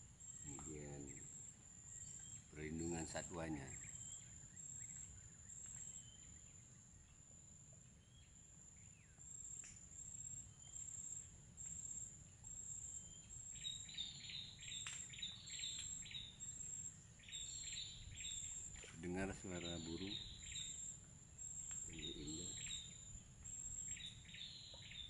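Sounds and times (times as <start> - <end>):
birds chirping: 0.0 - 7.2, 13.0 - 25.0
high insect trill: 0.0 - 25.0.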